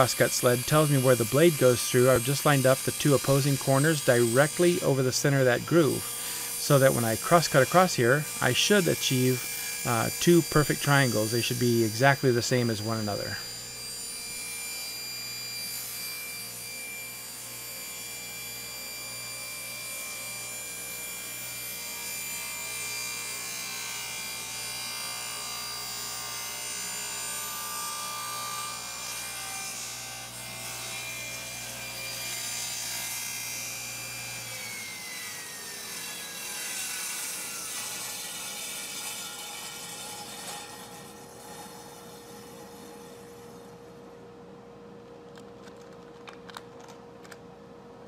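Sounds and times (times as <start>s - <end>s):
saw blade spinning down: 0.0s - 19.5s
table saw cutting wood: 0.0s - 44.0s.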